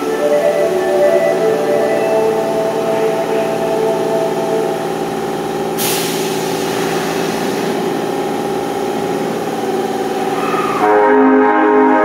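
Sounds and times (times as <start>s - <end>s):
subway train humming: 0.0s - 12.0s
compressed air hissing: 5.7s - 9.6s.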